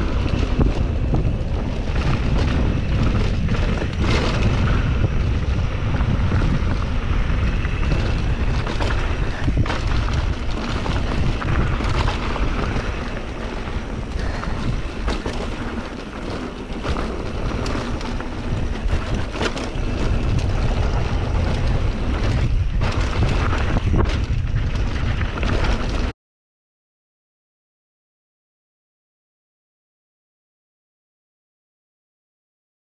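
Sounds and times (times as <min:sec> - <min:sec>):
bike rattling and knocking: 0:00.0 - 0:26.1
low rumble of bike: 0:00.0 - 0:26.1
wind buffeting microphone: 0:00.0 - 0:26.1.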